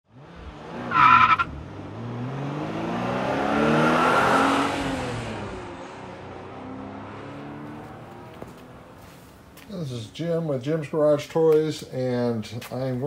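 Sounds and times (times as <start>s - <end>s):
car engine revving: 0.1s - 9.2s
tyre squeal: 0.9s - 1.5s.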